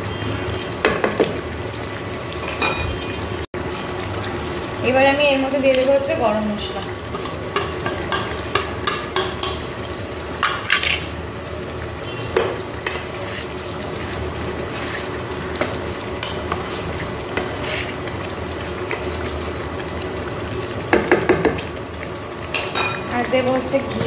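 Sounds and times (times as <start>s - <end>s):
curry bubbling: 0.0s - 24.0s
spatula scraping a pan: 12.8s - 15.2s, 16.5s - 18.1s.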